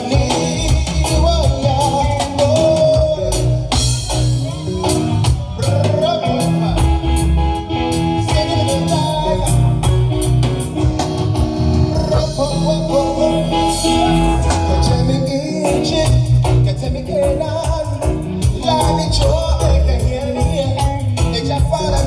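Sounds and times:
man singing lead vocal: 0.0s - 10.8s, 11.6s - 22.0s
live reggae band playing: 0.0s - 22.0s.

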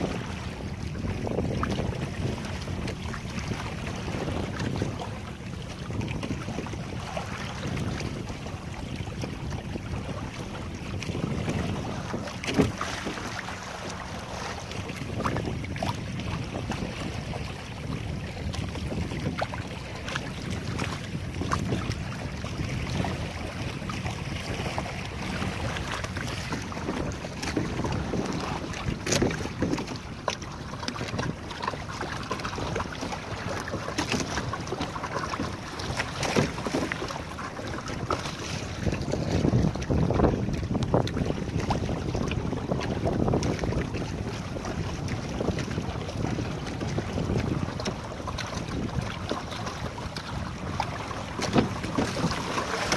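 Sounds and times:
water splashing against hull: 0.0s - 52.9s
wind buffeting microphone: 0.0s - 52.9s
sharp slaps on hull: 11.1s - 16.0s, 25.9s - 44.0s, 46.9s - 52.9s.

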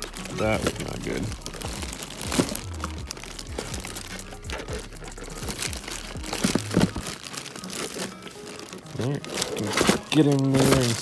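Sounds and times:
boxes rubbing and shifting: 0.0s - 11.0s
plastic bags crinkling: 0.0s - 11.0s.

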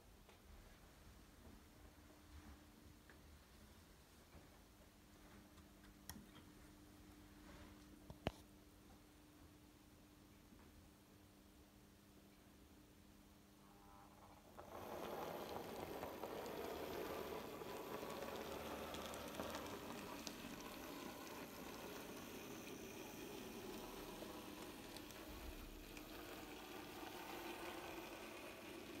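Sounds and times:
model train motor whirring: 14.5s - 29.0s.

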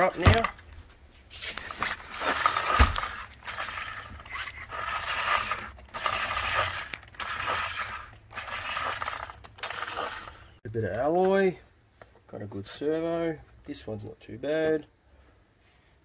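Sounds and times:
recoil pull starter rasping: 1.9s - 10.6s.

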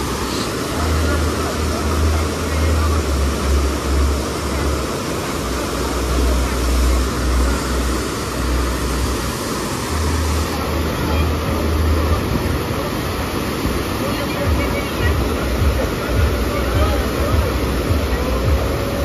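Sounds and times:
rushing pumped water: 0.0s - 19.0s.

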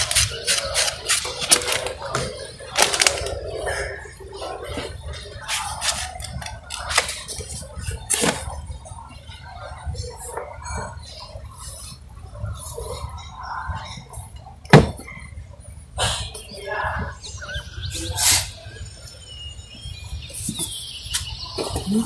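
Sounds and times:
book pages rustling: 0.0s - 3.4s.

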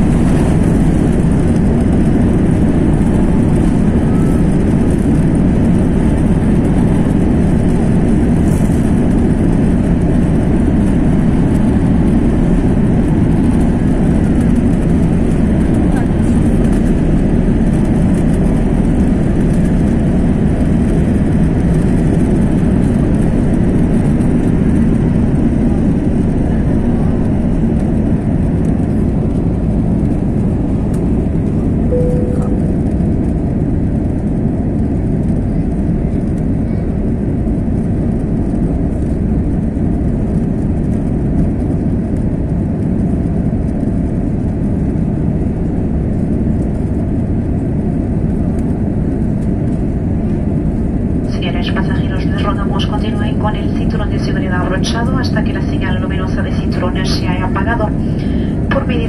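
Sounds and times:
jet engines roaring: 0.0s - 59.0s
short single tone: 31.9s - 33.0s.

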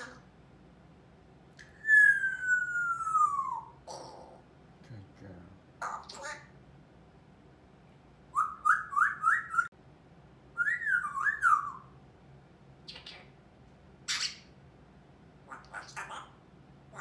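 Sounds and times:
parrot raspy calls: 0.0s - 0.3s, 1.6s - 4.5s, 5.8s - 6.6s, 10.7s - 12.0s, 14.0s - 14.6s, 15.4s - 17.0s
parrot whistling: 1.6s - 3.8s, 8.3s - 9.7s, 10.6s - 12.0s.

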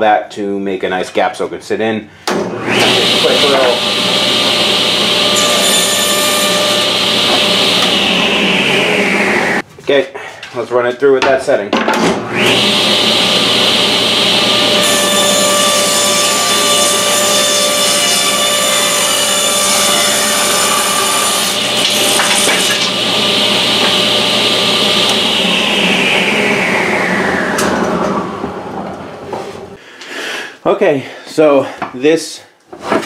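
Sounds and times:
table saw cutting wood: 2.3s - 9.6s, 12.1s - 29.8s
saw motor whine: 2.6s - 9.6s, 12.3s - 17.8s, 18.8s - 29.3s.

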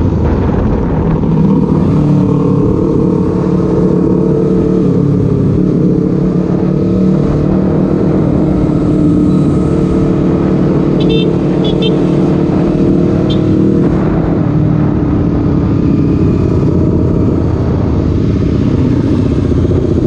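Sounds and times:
wind rumble on microphone: 0.0s - 10.8s
motorcycle engine droning: 0.0s - 20.0s.

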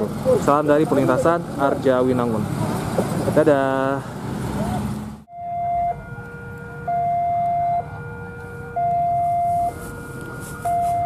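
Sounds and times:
two-tone level crossing alarm: 5.3s - 11.0s.

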